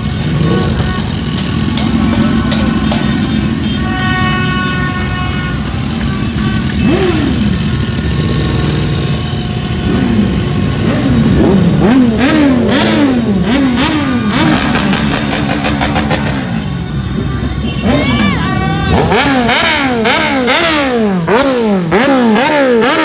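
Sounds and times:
motorcycle engine idling and revving: 0.0 - 23.0.

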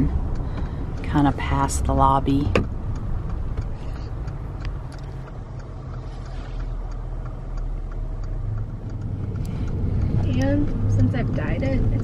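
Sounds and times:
car engine low rumble: 0.0 - 12.0
road noise: 0.0 - 12.0
faint ticks: 2.6 - 12.0.

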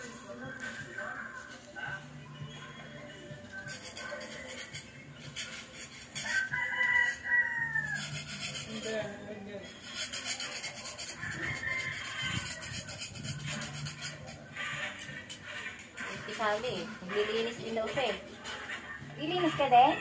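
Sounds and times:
rooster crowing: 6.2 - 8.5, 11.0 - 13.0
hand scraper rasping on wall: 8.0 - 9.2, 9.8 - 18.6.

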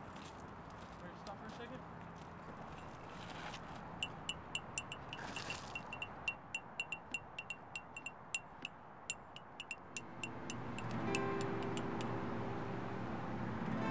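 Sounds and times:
small metal chime tinkling: 4.0 - 12.1.

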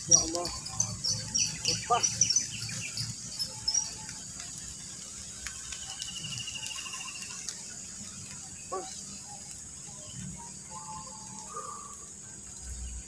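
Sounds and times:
fast insect trill: 0.0 - 13.0
insect chirps: 0.0 - 13.0
insects droning: 0.0 - 13.0.

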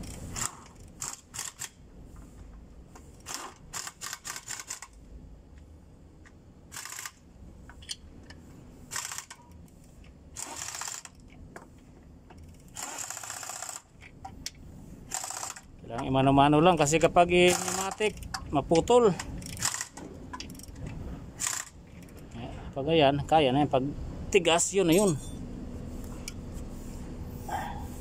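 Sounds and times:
socket ratchets clicking: 3.2 - 4.9, 17.5 - 18.4, 19.3 - 20.8.

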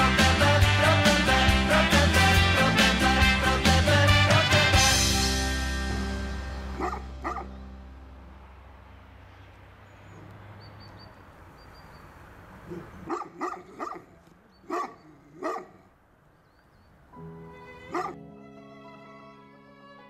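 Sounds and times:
dog barking: 6.8 - 7.5, 12.6 - 15.9, 17.9 - 18.2.

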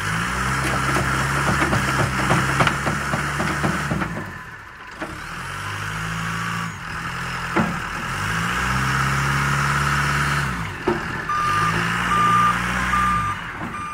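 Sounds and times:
wheel loader engine revving: 0.0 - 13.9
reversing alarm beeping: 11.2 - 13.9.

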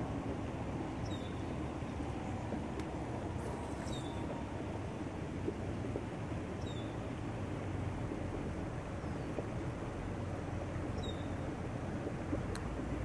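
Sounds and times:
low outdoor noise: 0.0 - 13.0
bird chirping: 11.0 - 11.4.

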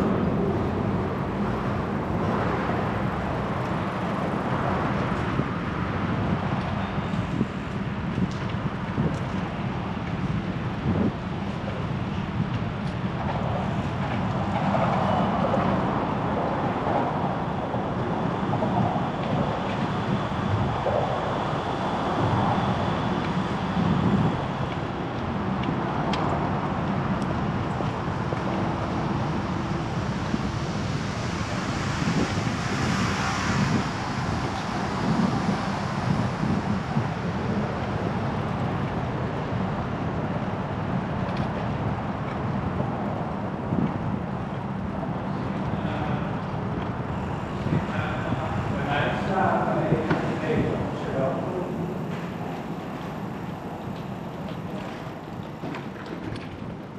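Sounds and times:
passing cars road noise: 0.0 - 56.9
wind on microphone: 0.0 - 56.9.

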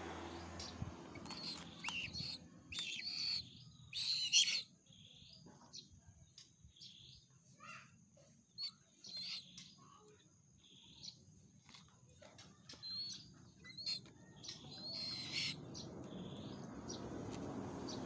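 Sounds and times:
young eagle begging calls: 1.2 - 4.6, 12.8 - 14.0, 14.7 - 15.6.

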